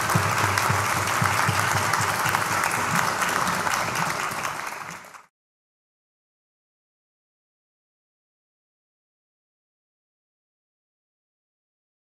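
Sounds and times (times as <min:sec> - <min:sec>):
audience applauding: 0:00.0 - 0:05.3.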